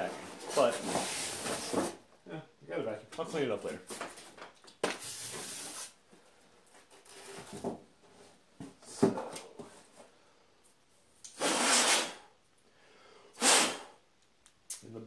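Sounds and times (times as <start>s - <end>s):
cardboard and foam rustling: 0.0s - 2.0s.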